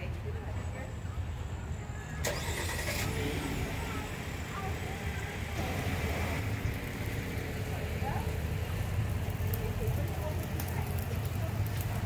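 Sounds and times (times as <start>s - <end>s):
car engine idling: 2.2s - 11.6s.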